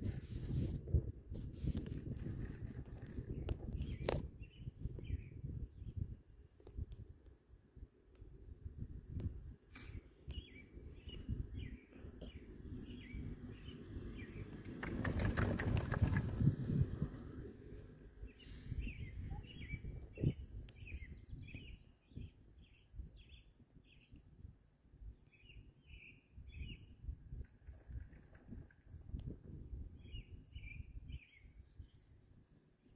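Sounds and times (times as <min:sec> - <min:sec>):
chairlift chair rattling rumble: 0:01.5 - 0:04.2, 0:14.2 - 0:17.2, 0:27.3 - 0:29.1
birds chirping: 0:10.0 - 0:16.5, 0:18.0 - 0:24.2, 0:30.0 - 0:32.1.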